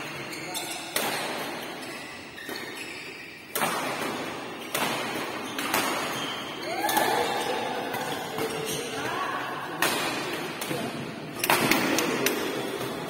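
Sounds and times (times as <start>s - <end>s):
rackets striking shuttlecock: 0.6s - 8.7s.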